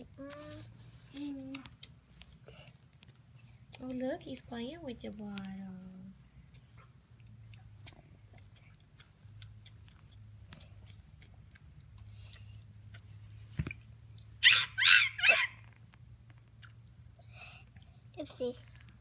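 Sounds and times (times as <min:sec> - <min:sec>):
faint low hum: 0:00.0 - 0:19.0
high-pitched yelps: 0:14.4 - 0:15.7.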